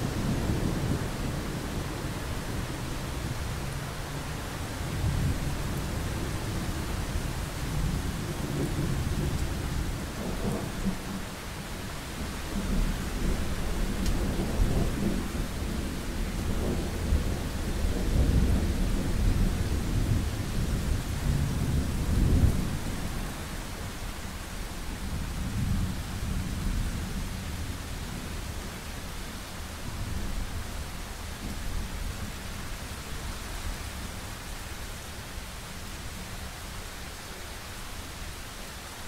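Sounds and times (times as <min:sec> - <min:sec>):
thunder rumbling: 0:12.1 - 0:23.4.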